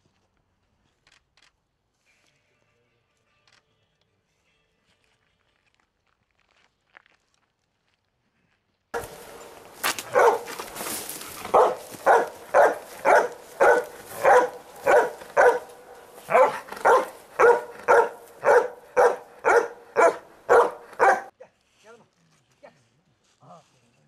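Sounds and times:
dog barking: 9.0s - 21.3s.

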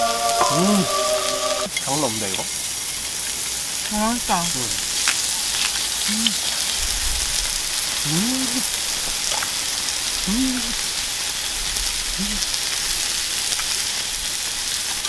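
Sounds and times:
person humming: 0.0s - 1.7s, 3.9s - 4.8s, 6.1s - 6.4s, 8.0s - 8.7s, 10.3s - 10.8s, 12.2s - 12.6s
beef sizzling on a griddle: 0.0s - 15.0s.

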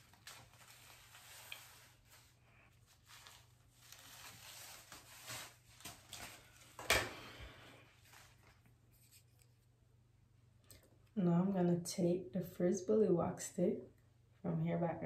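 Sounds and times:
comb rustling through hair: 0.0s - 9.7s.

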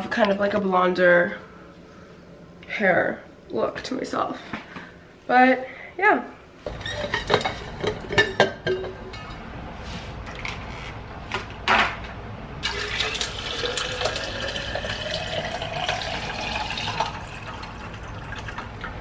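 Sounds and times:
water pouring into a tumbler: 12.6s - 19.0s.

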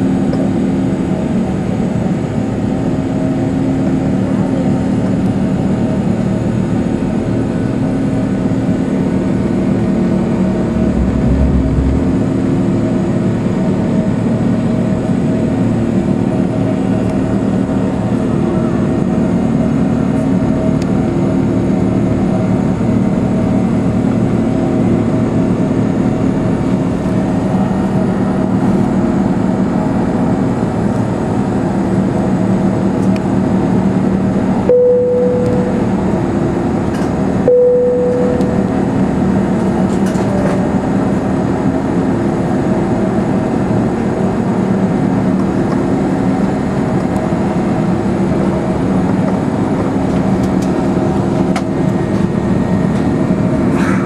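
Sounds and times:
jet engine drone: 9.0s - 13.9s
low steady hums: 10.1s - 13.2s, 34.7s - 36.2s, 37.5s - 39.1s
rushing air: 10.1s - 13.3s.

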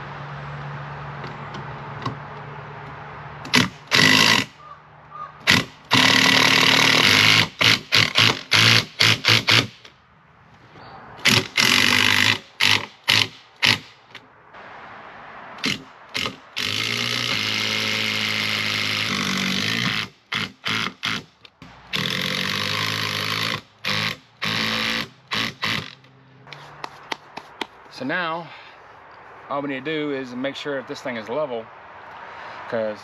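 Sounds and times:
power drill driving screws into wood: 3.5s - 4.6s, 5.4s - 9.9s, 11.2s - 14.0s, 15.6s - 21.3s, 21.9s - 26.0s.

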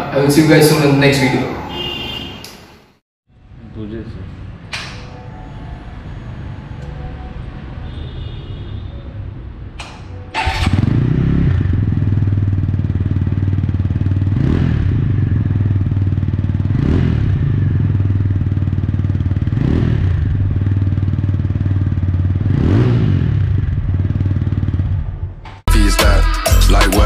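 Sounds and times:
motorcycle engine idling and revving: 9.8s - 25.7s.

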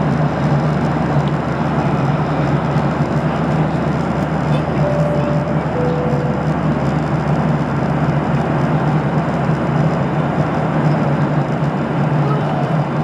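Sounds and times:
constant low hum: 0.0s - 9.6s
airliner cabin noise: 0.0s - 10.4s.

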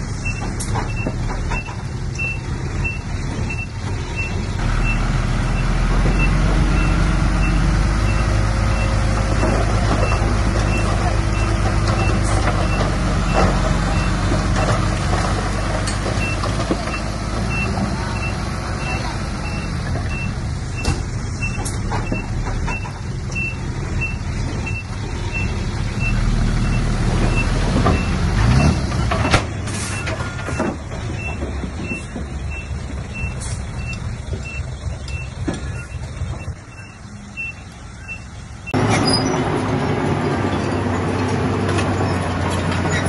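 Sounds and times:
diesel engine of earthmoving machine: 0.0s - 43.0s
backup alarm beeping: 30.0s - 38.8s.

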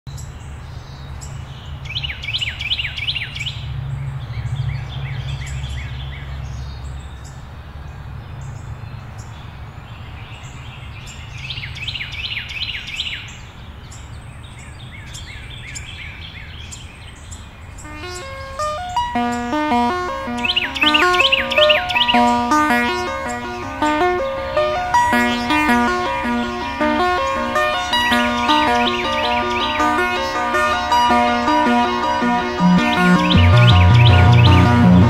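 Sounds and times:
songbird singing: 8.4s - 35.0s.

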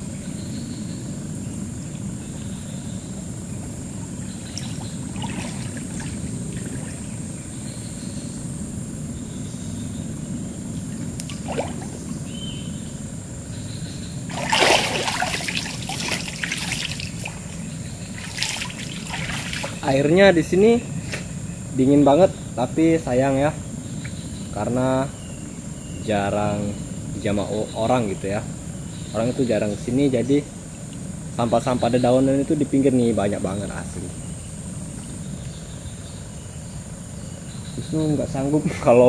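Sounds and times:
water trickling and splashing: 4.0s - 7.4s, 10.9s - 12.4s, 14.3s - 20.5s.

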